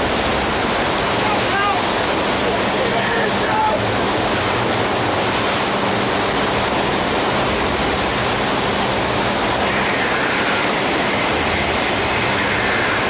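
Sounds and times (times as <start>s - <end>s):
rough sea churning against hull: 0.0s - 13.0s.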